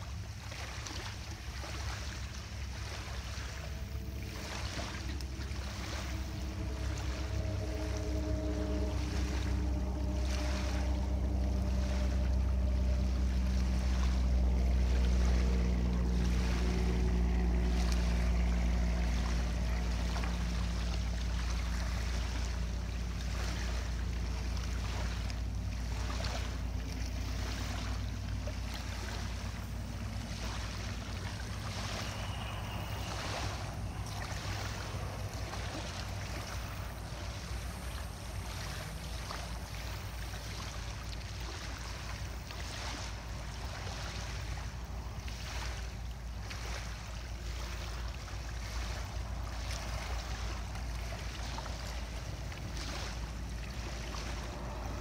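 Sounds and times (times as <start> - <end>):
low mechanical drone: 0.0 - 55.0
waves lapping on sand: 0.0 - 55.0
wind on microphone: 2.5 - 46.4.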